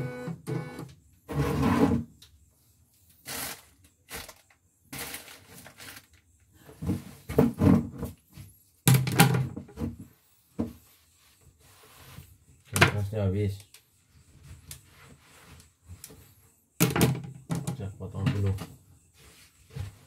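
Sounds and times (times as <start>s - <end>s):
handling knocks and rubbing: 17.5s - 20.0s.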